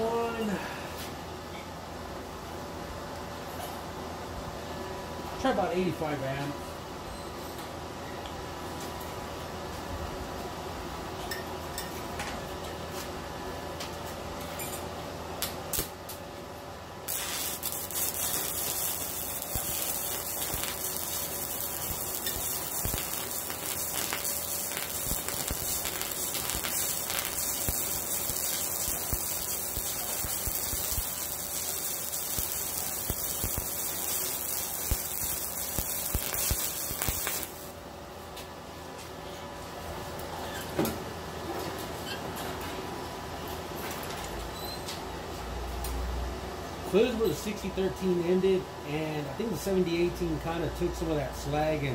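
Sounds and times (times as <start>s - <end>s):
welding arc crackling hiss: 15.4s - 16.2s, 17.0s - 37.8s.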